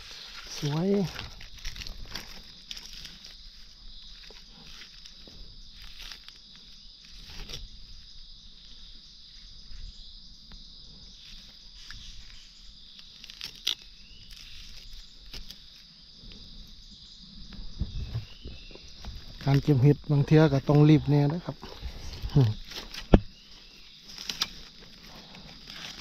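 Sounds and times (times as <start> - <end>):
rustles and snaps: 0.0 - 3.6, 13.0 - 15.8, 22.1 - 23.3, 24.0 - 26.0
insects droning: 0.0 - 26.0.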